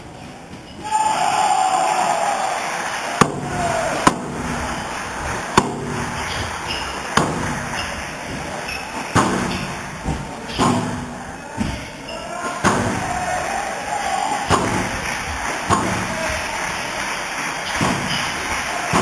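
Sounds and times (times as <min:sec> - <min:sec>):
squash ball knocks: 0:03.2 - 0:04.6, 0:05.6 - 0:06.5, 0:07.1 - 0:07.7, 0:09.1 - 0:11.8, 0:12.6 - 0:13.0, 0:14.5 - 0:14.9, 0:15.7 - 0:16.2, 0:17.7 - 0:18.3.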